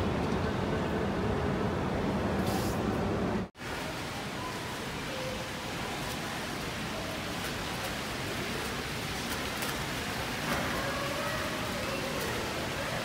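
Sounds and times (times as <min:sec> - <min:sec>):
murmur of indoor hall: 0:00.0 - 0:13.0
fountain water splashing: 0:03.6 - 0:13.0.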